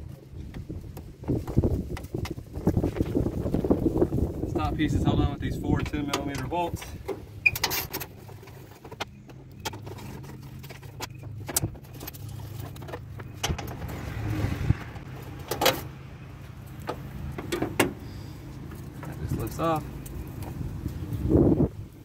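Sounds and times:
loose bolts clinking: 0:05.8 - 0:08.2.

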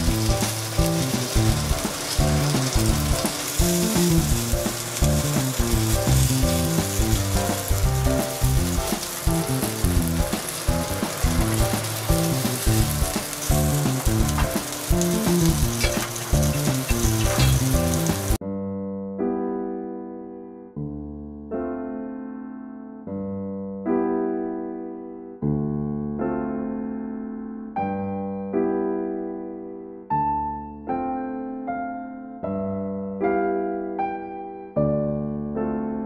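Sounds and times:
background music: 0:00.0 - 0:18.4
dumplings sizzling in oil: 0:00.0 - 0:18.4.

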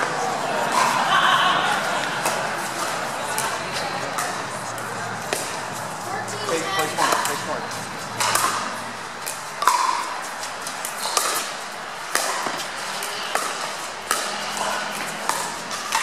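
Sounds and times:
paddles hitting plastic ball: 0:02.2 - 0:16.0.

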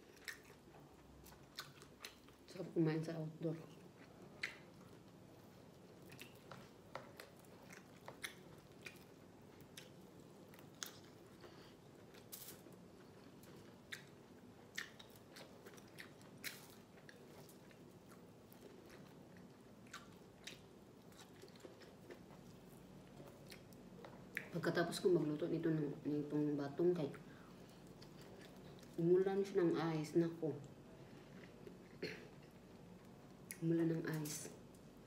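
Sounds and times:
person chewing food: 0:00.0 - 0:02.5, 0:03.7 - 0:24.5, 0:27.5 - 0:29.0, 0:30.7 - 0:33.6.

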